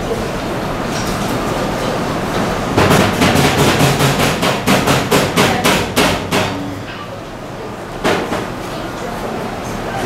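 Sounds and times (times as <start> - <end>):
steady background hum: 0.0 - 10.0
rapid sharp knocks: 2.8 - 6.6.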